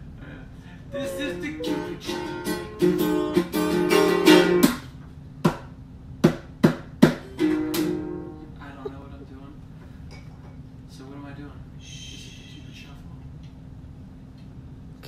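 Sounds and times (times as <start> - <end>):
ukulele strumming: 0.9 - 4.9, 7.1 - 8.6.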